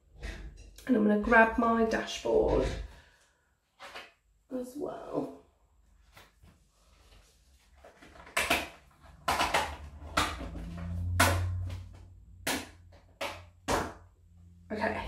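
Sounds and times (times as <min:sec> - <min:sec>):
papers knocking and clattering on desk: 0:07.6 - 0:14.0.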